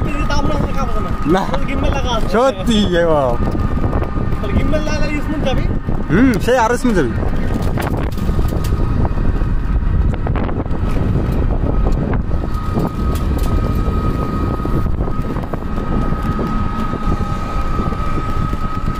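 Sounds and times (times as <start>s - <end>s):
road vehicle rumble: 0.0s - 18.9s
wind buffeting microphone: 0.0s - 18.9s.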